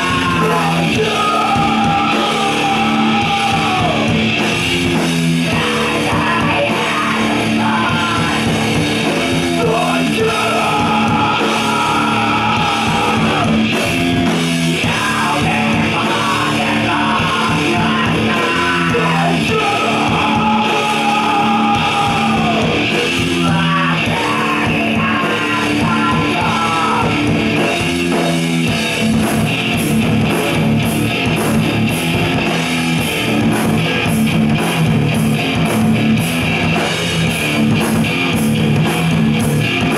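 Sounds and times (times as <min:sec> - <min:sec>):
person singing and shouting: 0:00.0 - 0:04.3, 0:05.4 - 0:27.6
heavy rock band playing: 0:00.0 - 0:39.9.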